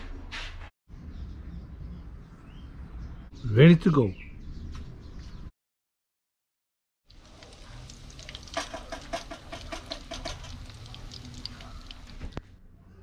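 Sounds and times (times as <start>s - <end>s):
fish deep-frying in hot oil: 7.0s - 12.4s.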